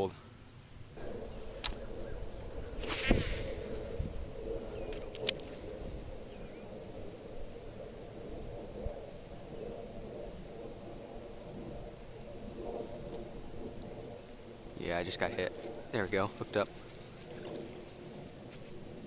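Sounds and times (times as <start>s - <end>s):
faint high whine: 0.0s - 19.0s
low rustling of line: 0.6s - 19.0s
rod cast whoosh: 2.8s - 3.9s.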